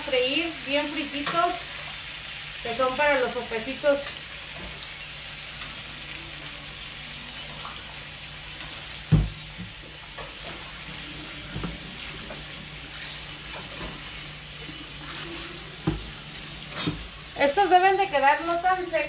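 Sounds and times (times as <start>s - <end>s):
beans sizzling in oil: 0.0s - 19.0s.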